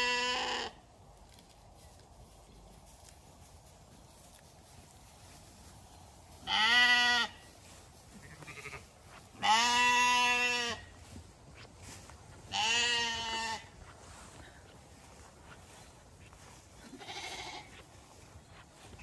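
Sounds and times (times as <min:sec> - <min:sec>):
sheep bleating: 0:00.0 - 0:00.8, 0:06.4 - 0:07.5, 0:08.2 - 0:10.9, 0:12.5 - 0:13.7, 0:16.8 - 0:17.8.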